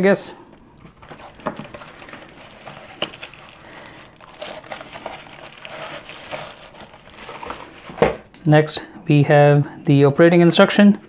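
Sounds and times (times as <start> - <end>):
paper crinkling: 0.5 - 8.3
cardboard box being opened: 0.8 - 8.3.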